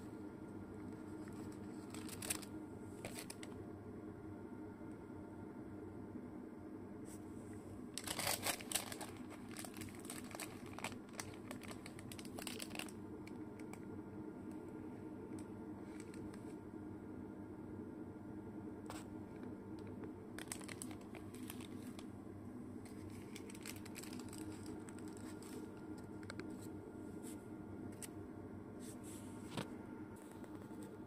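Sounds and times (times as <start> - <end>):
steady low hum: 0.0 - 31.0
paper wrappers crinkling: 1.0 - 3.5, 8.0 - 13.8, 15.4 - 16.5, 20.4 - 22.1, 22.8 - 26.7.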